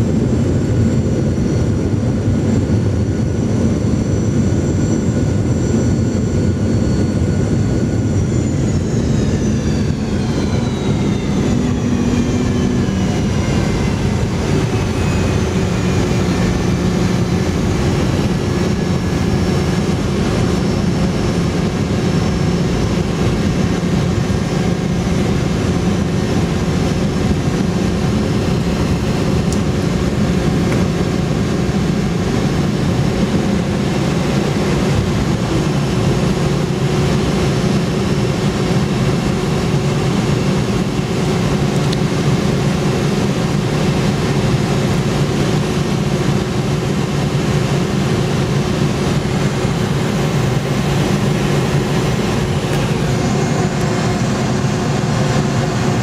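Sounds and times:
jet engine whine spooling down: 0.0 - 56.0
runway rollout rumble: 46.0 - 56.0.

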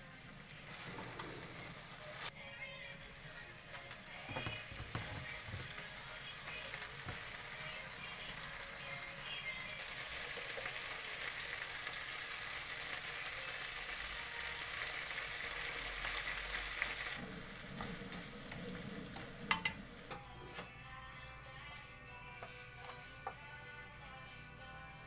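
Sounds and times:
food sizzling in a frying pan: 0.0 - 2.4, 3.2 - 20.2.

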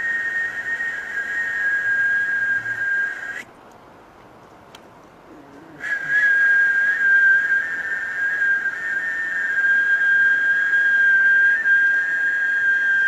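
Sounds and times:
fainter second tone: 0.0 - 3.5
high whistled tone: 0.0 - 3.5, 5.8 - 13.0.

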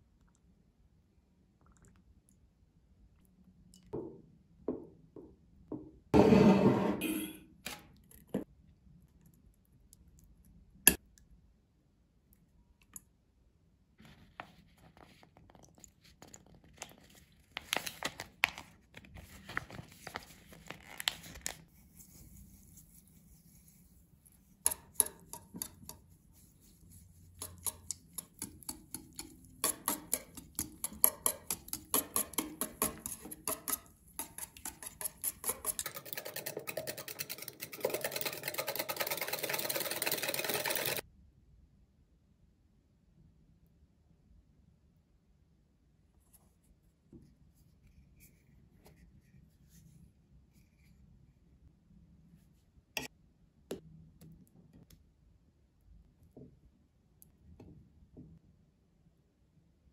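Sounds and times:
whisk clinking in a bowl: 24.6 - 26.1, 27.2 - 41.0.

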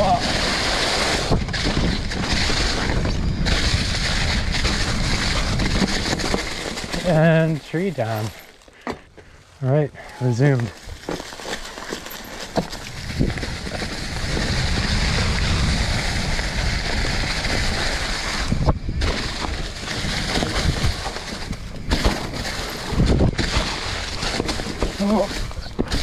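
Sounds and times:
wind rush on microphone: 0.0 - 7.2, 12.8 - 26.0
tyres crunching through leaves: 0.0 - 26.0.

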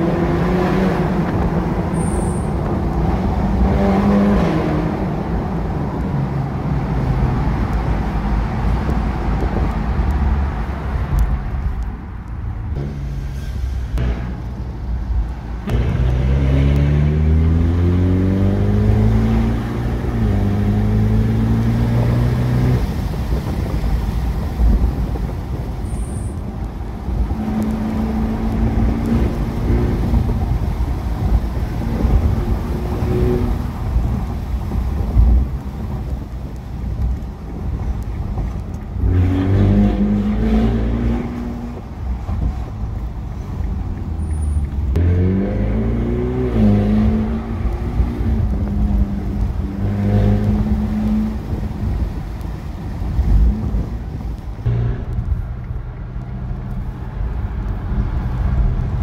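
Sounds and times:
road noise: 0.0 - 59.0
car engine accelerating: 15.7 - 23.2, 44.5 - 52.2.

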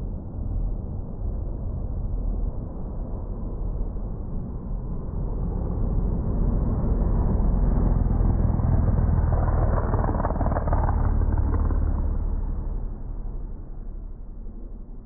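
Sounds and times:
race car engine rumble: 7.2 - 15.0.

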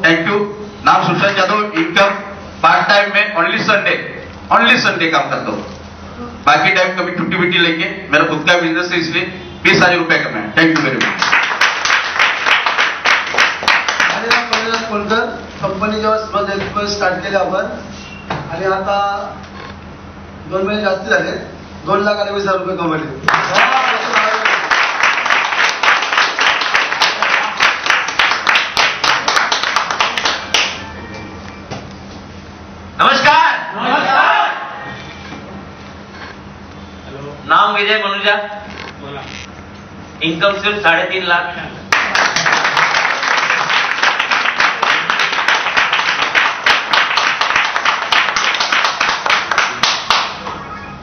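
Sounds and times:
audience applauding: 10.8 - 14.9, 23.3 - 30.8, 41.9 - 50.5.

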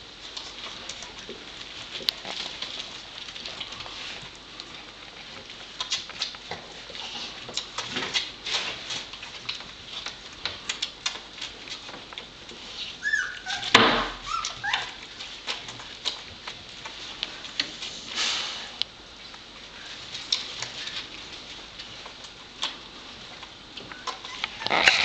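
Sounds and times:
puppies whimpering: 13.0 - 15.1, 23.9 - 25.0.

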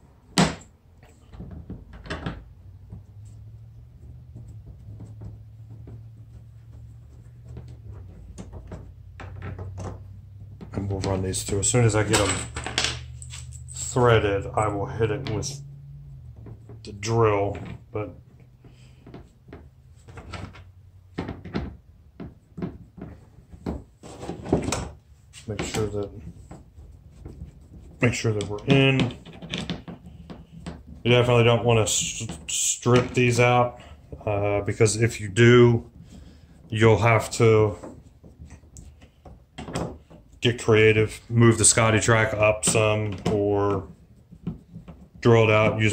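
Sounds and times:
hardware knocking on plastic hull: 4.1 - 11.3.

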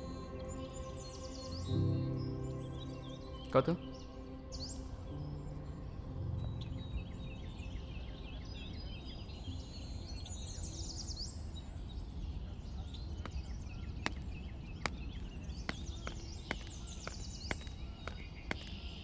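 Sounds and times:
birds chirping: 0.0 - 19.0
footsteps on paved road: 13.2 - 19.0.

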